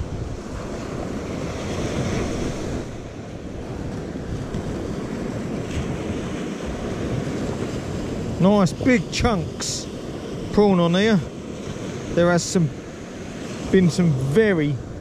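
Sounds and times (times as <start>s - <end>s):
surf breaking on beach: 0.0s - 15.0s
wind rumbling on microphone: 0.0s - 15.0s.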